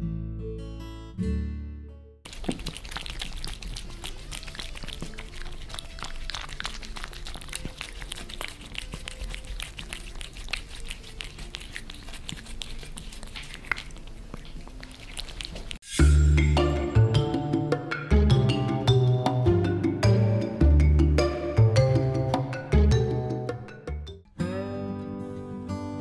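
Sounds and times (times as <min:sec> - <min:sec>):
cats licking and smacking: 0:02.3 - 0:15.8.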